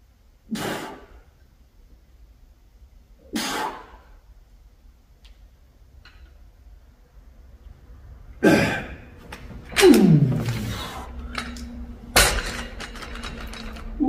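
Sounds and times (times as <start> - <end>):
man grunting and groaning: 8.4 - 9.0, 9.8 - 10.5.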